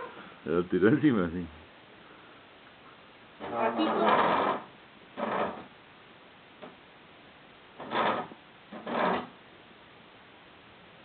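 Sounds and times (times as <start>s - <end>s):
wooden stool scraping on tile floor: 3.4s - 5.8s, 7.8s - 9.4s.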